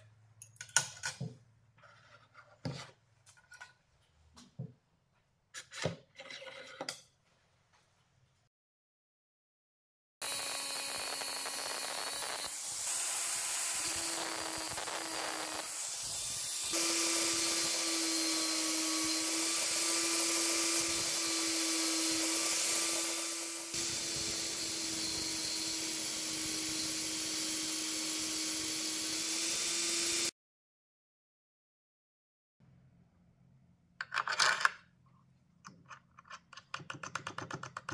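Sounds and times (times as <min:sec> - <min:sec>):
angle grinder grinding steel: 0:10.2 - 0:30.3.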